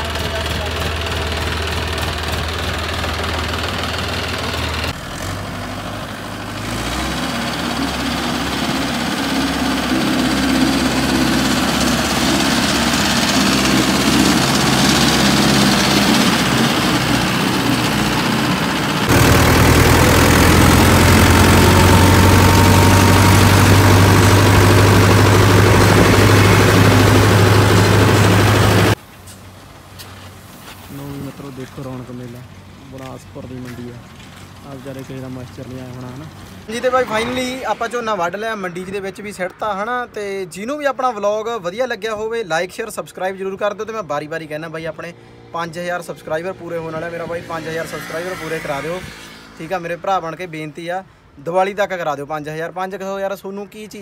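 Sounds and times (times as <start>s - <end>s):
tractor engine hum: 0.0s - 40.5s
diesel engines running: 0.0s - 52.0s.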